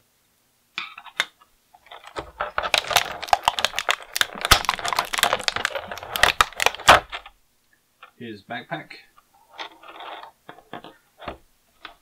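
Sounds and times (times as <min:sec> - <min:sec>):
plastic packaging crackling: 0:01.8 - 0:07.4.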